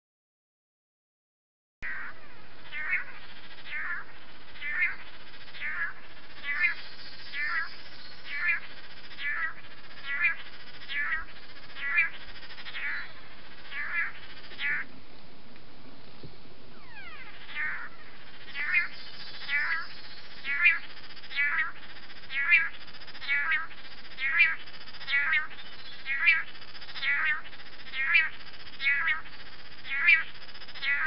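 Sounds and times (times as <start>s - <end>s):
birds calling: 1.8s - 31.0s
constant hiss: 1.9s - 31.0s.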